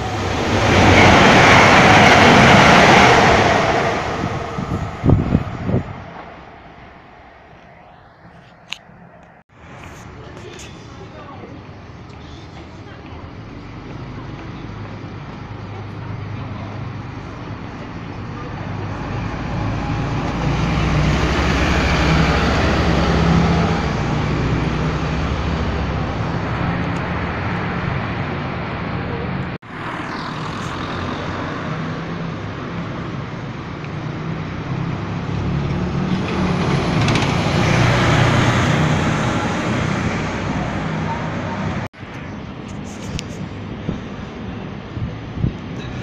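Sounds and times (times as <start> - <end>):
bus diesel engines passing: 0.0 - 46.0
tyre and road noise: 0.0 - 46.0.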